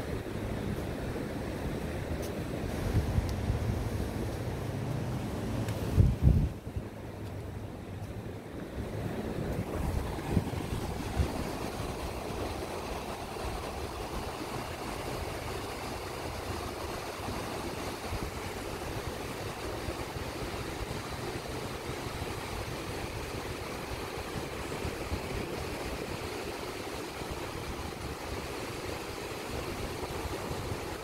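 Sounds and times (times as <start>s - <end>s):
surf waves washing onto beach: 0.0s - 31.0s.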